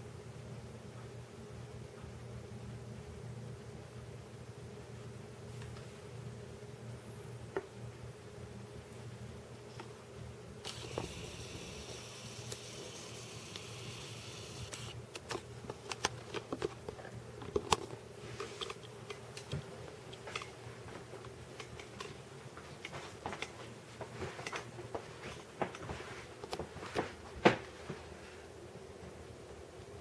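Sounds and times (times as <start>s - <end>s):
faint steady hum: 0.0s - 30.0s
phone handling clicks and rustles: 14.7s - 23.6s.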